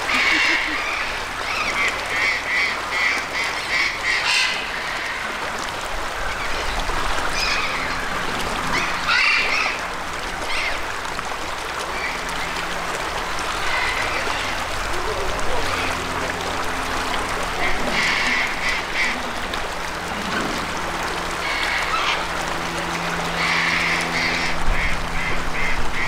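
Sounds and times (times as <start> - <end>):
birds calling raspily: 0.0 - 5.2.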